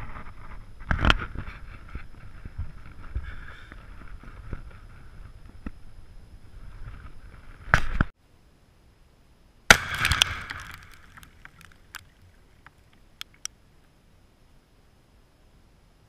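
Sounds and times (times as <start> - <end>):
scattered ticks: 10.2 - 13.6.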